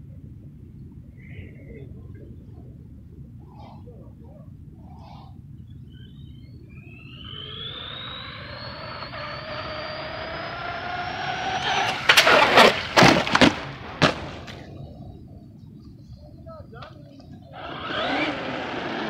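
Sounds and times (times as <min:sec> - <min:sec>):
rc truck motor whine: 0:06.1 - 0:14.4, 0:17.4 - 0:19.0
loud rough noise bursts: 0:07.9 - 0:14.5, 0:17.6 - 0:19.0.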